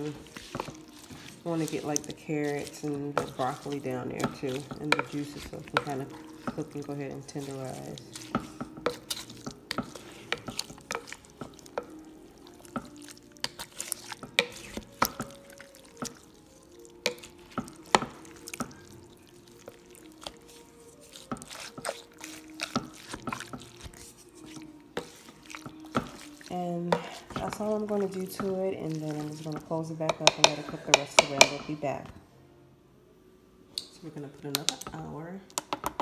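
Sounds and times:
wet squelching: 0.0 - 31.7
utensil knocking against pot: 1.6 - 12.0, 30.0 - 31.8.

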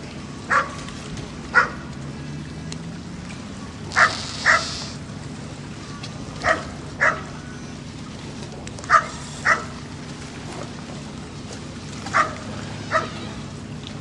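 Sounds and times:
dog barking: 0.5 - 0.8, 1.6 - 1.8, 4.0 - 4.7, 6.4 - 7.3, 8.9 - 9.7, 12.1 - 13.2.

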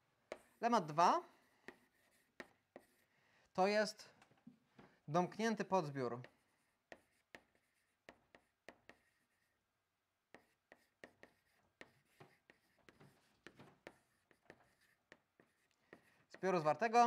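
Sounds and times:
chalk tapping on chalkboard: 0.3 - 0.7, 1.4 - 3.1, 6.2 - 9.4, 10.3 - 16.6.

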